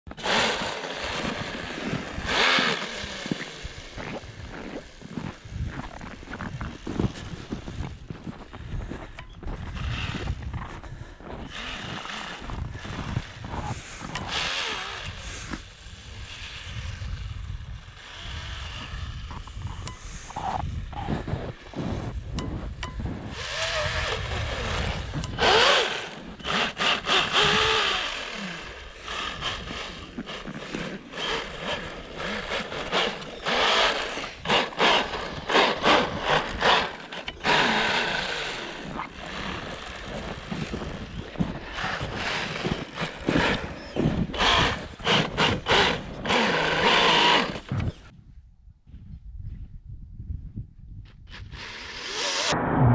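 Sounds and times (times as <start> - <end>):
loud bursts of noise: 0.1 - 5.2, 17.9 - 48.1, 51.5 - 52.9
small electric motor buzzing: 0.1 - 48.1, 51.3 - 52.6
wind on microphone: 0.1 - 52.9.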